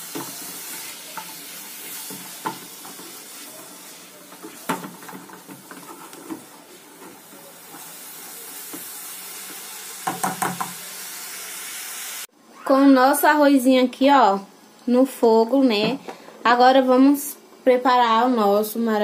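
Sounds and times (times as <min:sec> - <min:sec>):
spatula tapping pan: 0:00.0 - 0:03.4, 0:04.3 - 0:07.9, 0:08.7 - 0:10.8
spatula stirring: 0:00.0 - 0:10.7
vegetables sizzling in oil: 0:00.0 - 0:12.3.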